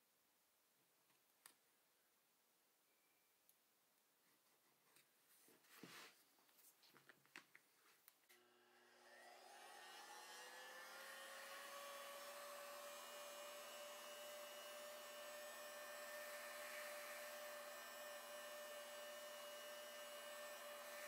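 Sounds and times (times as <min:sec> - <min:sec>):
heat gun fan whining: 0:08.3 - 0:21.0.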